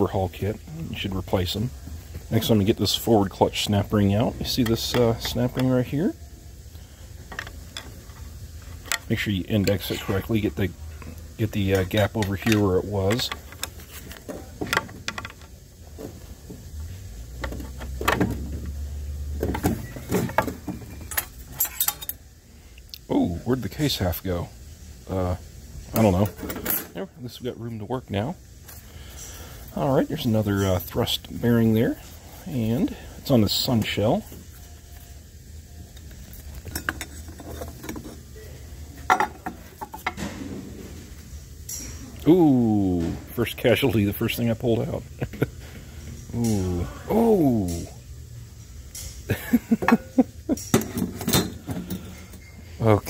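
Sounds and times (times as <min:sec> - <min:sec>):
low steady hum: 0:00.0 - 0:53.0
steel parts clinking and knocking: 0:11.6 - 0:15.5, 0:19.4 - 0:22.2, 0:26.0 - 0:27.0, 0:36.1 - 0:38.2, 0:48.9 - 0:52.6
metal parts clattering: 0:19.5 - 0:22.2.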